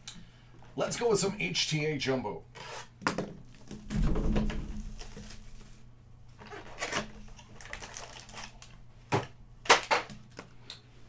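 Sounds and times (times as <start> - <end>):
cardboard scraping and rustling: 3.6 - 8.5
cardboard box thump: 3.8 - 5.2.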